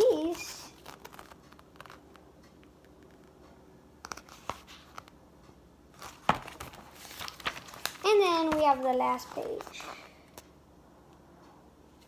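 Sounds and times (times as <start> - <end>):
book pages rustling: 0.0 - 3.4, 4.0 - 5.2, 5.9 - 10.4.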